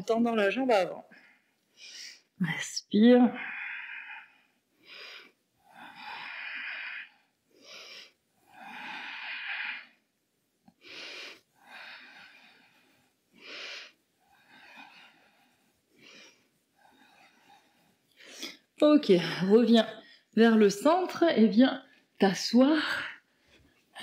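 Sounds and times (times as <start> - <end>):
woman breathing deeply: 3.4 - 10.1, 10.7 - 18.7.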